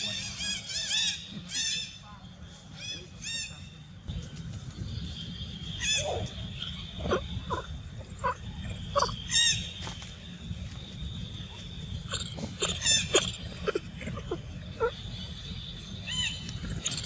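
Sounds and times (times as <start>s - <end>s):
steady outdoor background drone: 0.0s - 17.0s
high-pitched animal calls: 5.8s - 9.7s, 12.0s - 15.4s.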